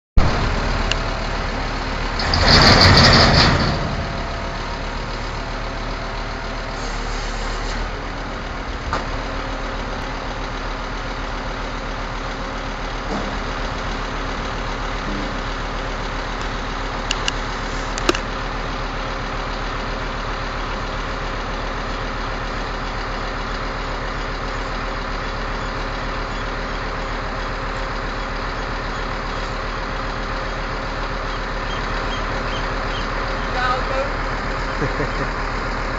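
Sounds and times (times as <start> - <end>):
truck diesel engine running: 0.2 - 35.9
loud hydraulic hiss: 6.8 - 7.8.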